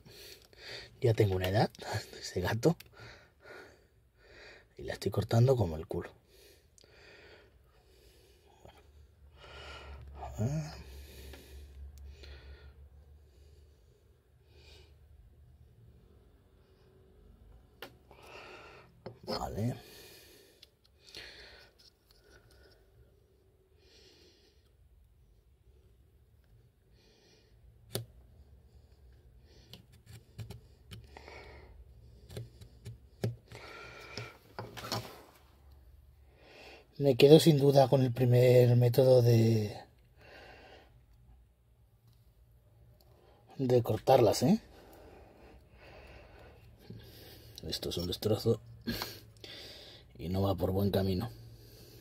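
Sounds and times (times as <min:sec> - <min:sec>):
man breathing through nose: 0:06.2 - 0:10.2, 0:10.8 - 0:15.0, 0:18.1 - 0:19.0, 0:19.8 - 0:23.0, 0:33.4 - 0:34.5, 0:44.7 - 0:47.6, 0:49.0 - 0:50.1.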